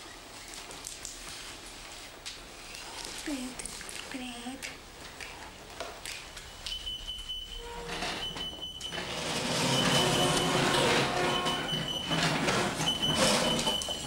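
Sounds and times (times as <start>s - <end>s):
electronic school bell beeping: 6.5s - 14.0s.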